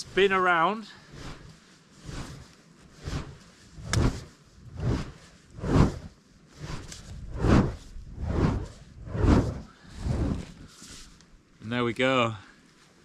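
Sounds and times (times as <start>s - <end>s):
cardboard tube swishing: 1.2s - 11.2s.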